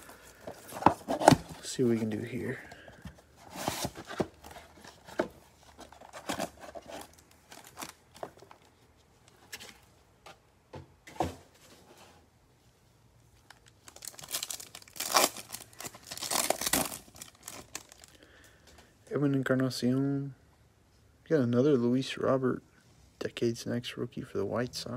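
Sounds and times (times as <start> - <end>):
cardboard box rustles and clicks: 0.4 - 2.2, 3.0 - 8.6
foil wrapper crinkling and tearing: 13.6 - 18.2.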